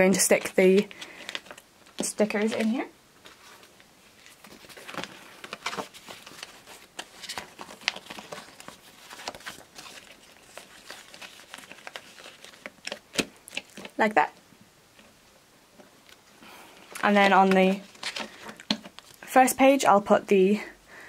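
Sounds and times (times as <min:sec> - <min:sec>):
sticker sheet and plastic crinkling: 0:00.2 - 0:14.0.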